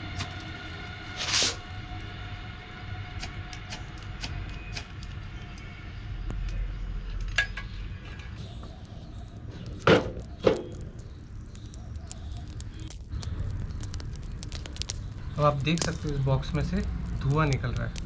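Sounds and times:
low steady rumble: 0.0 - 7.9.

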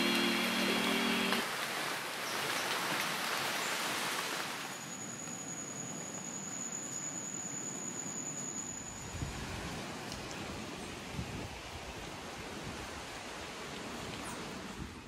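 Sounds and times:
heavy rain on foliage: 0.0 - 4.7
thin high steady tone: 4.7 - 9.4.

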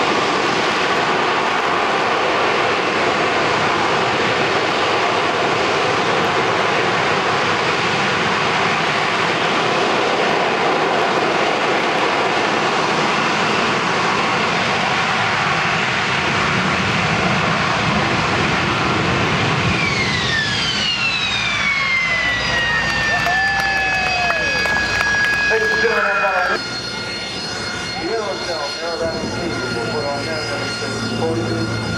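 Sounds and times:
jet engine roaring at hover: 0.0 - 31.9
high whine sliding down: 19.2 - 31.9.

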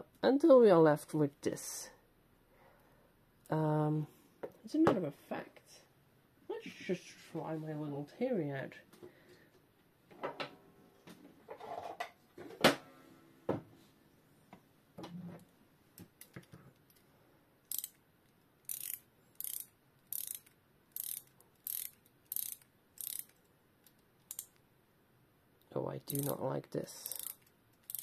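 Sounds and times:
clock ratchet clicking: 17.7 - 18.0, 18.7 - 23.4, 24.2 - 24.5, 26.1 - 26.4, 27.0 - 28.0.

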